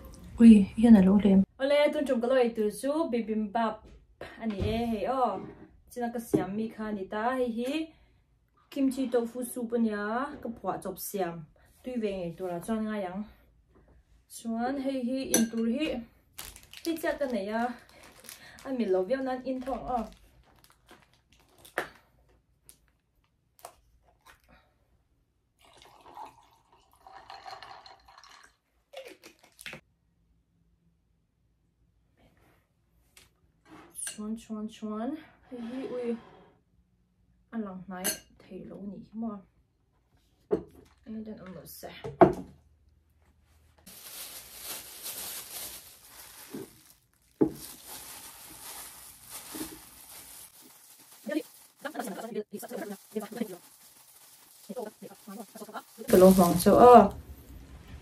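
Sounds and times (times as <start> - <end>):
plastic gloves crinkling: 16.2 - 23.9, 43.7 - 58.0
drink pouring into glass of ice: 25.6 - 29.4.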